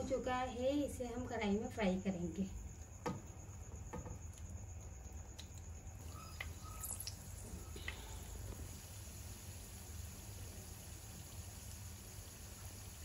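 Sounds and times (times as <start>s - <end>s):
hot oil sizzling: 6.0s - 13.0s.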